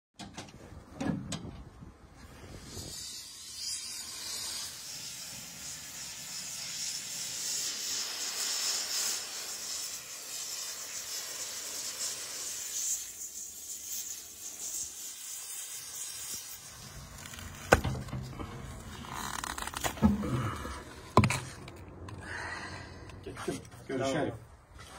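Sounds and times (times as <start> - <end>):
gas torch flame hissing: 2.2 - 22.1.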